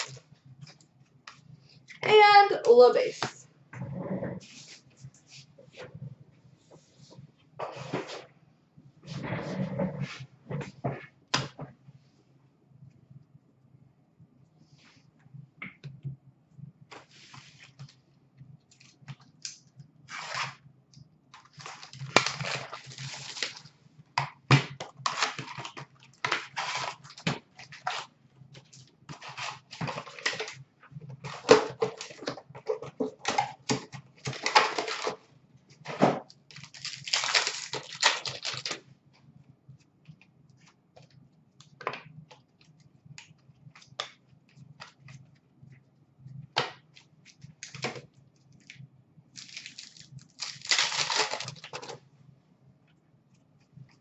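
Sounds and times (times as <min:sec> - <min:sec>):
wrappers being torn and crinkled: 0:21.4 - 0:23.7, 0:33.2 - 0:35.2, 0:36.5 - 0:38.8, 0:49.4 - 0:52.0.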